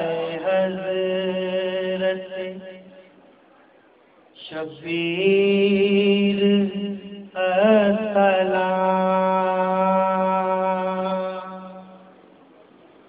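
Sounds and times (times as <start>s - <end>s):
man chanting a lament: 0.0s - 3.0s, 4.4s - 12.1s.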